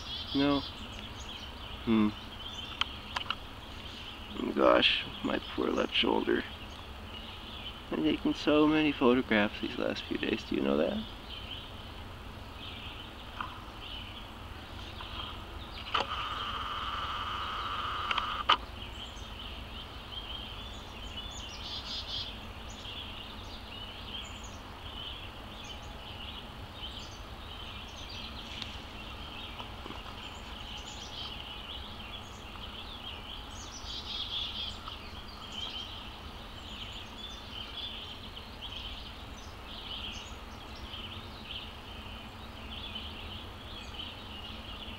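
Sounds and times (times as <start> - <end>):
low outdoor rumble: 0.0 - 44.9
small birds chirping: 0.0 - 44.9
steady buzz: 14.3 - 18.6.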